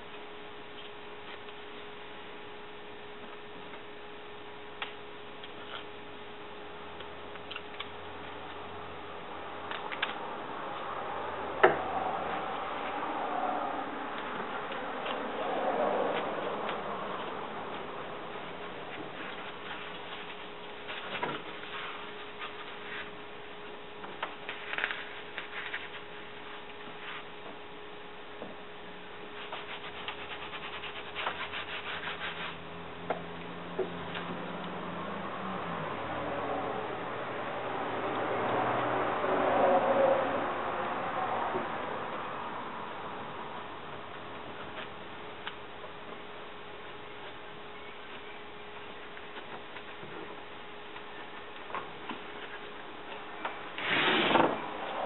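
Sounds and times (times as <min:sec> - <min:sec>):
faint steady hum: 0:00.0 - 0:55.0
cloth pads rubbing on wood: 0:15.0 - 0:23.3, 0:29.4 - 0:32.7.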